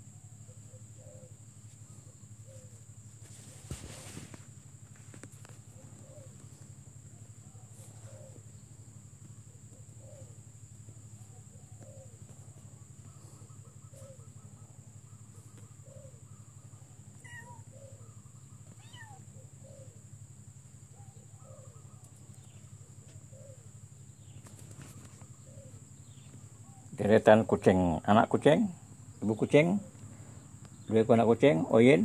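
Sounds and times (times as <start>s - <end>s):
kittens mewing: 17.1s - 18.0s, 18.6s - 19.6s.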